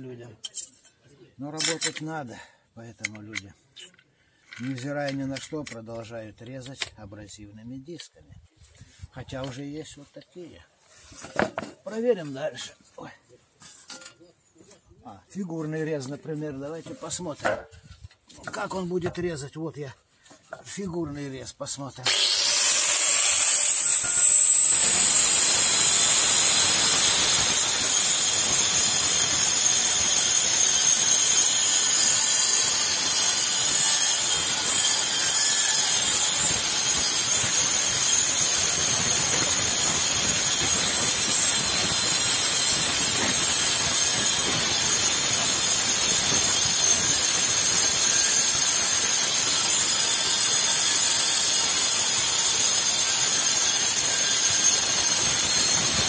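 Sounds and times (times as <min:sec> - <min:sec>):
angle grinder whining: 0:22.0 - 0:56.0.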